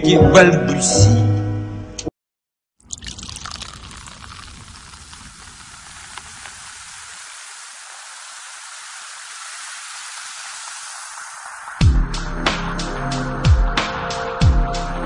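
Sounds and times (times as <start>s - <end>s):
steady rain-like hiss: 3.4s - 11.8s.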